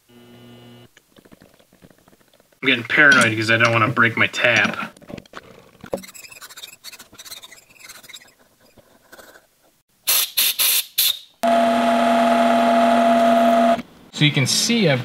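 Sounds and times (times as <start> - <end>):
lathe tool squealing on plastic: 5.9 - 9.4.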